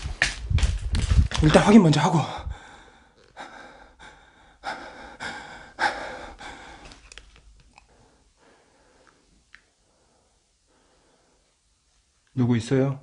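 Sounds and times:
person breathing heavily: 2.2 - 7.2, 7.8 - 11.6.

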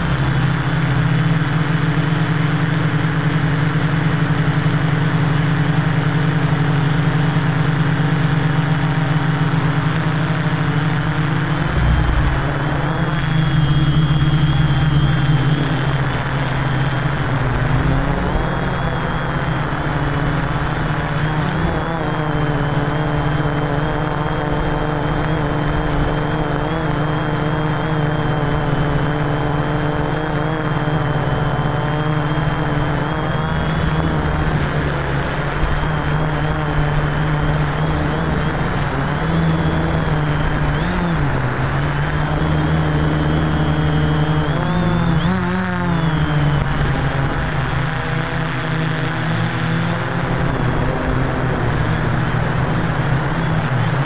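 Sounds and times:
quadcopter motors humming: 0.0 - 54.0
wind rush: 11.4 - 14.6.

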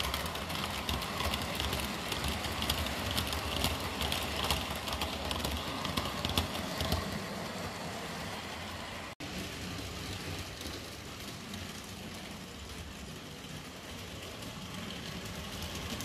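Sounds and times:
model train wheels clicking: 0.0 - 16.0.

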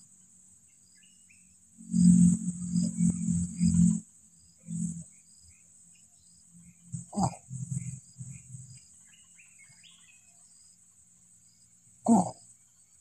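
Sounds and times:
insects trilling: 0.0 - 13.0
faint chirps: 0.7 - 13.0
loud grunt: 7.1 - 7.4, 12.1 - 12.4.

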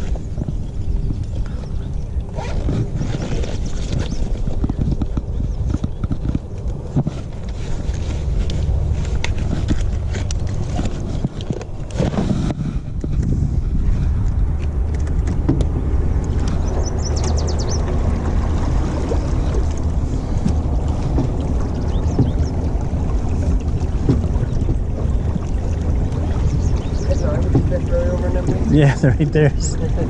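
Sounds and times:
boat motor humming: 0.0 - 30.0
water washing along hull: 0.0 - 30.0
gear knocking and clicking: 3.9 - 7.6.

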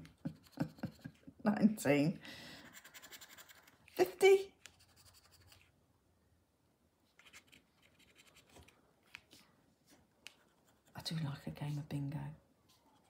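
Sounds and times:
fingernail scratching scratch card: 2.6 - 5.7, 7.2 - 8.7.

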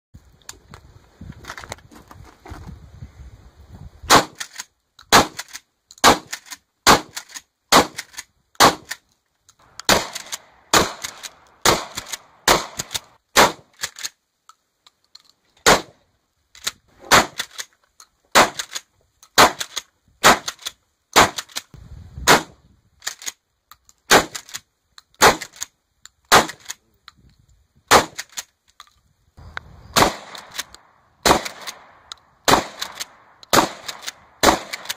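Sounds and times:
shotgun blasts: 4.1 - 4.4, 5.1 - 5.4, 6.0 - 9.0, 9.6 - 13.7, 15.6 - 16.0, 17.0 - 17.5, 18.3 - 18.7, 19.4 - 20.6, 21.2 - 21.6, 22.2 - 22.6, 24.1 - 24.4, 25.2 - 25.5, 26.3 - 26.7, 27.9 - 28.2, 29.9 - 34.9.

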